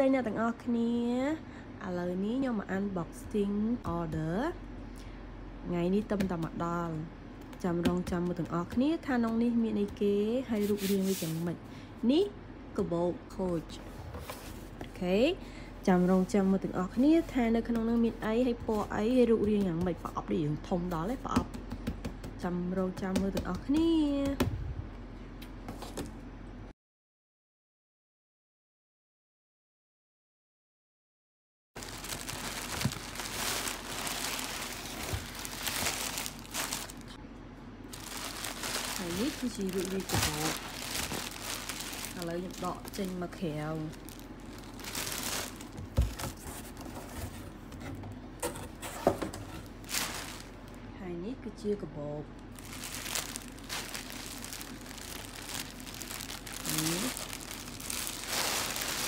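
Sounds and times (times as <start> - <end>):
plastic bag crinkling: 31.8 - 37.2, 37.9 - 46.8, 49.5 - 50.8, 52.5 - 59.0.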